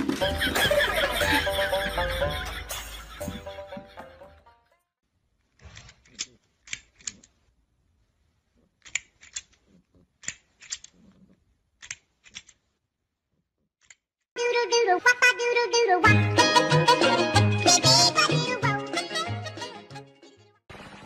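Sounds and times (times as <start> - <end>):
music: 0.0 - 4.9, 14.4 - 20.6
plastic toy jaws clacking: 5.6 - 7.5, 8.7 - 12.7.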